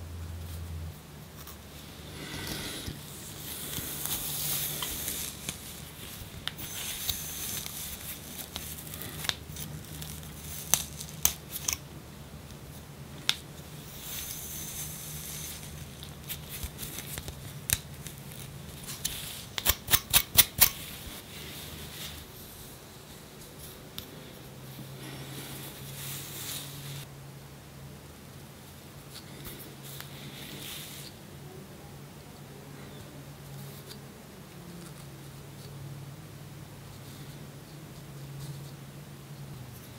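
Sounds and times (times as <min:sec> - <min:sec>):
low steady hum: 0:00.0 - 0:19.9, 0:20.6 - 0:39.9
dry scraping on scalp: 0:02.2 - 0:11.4.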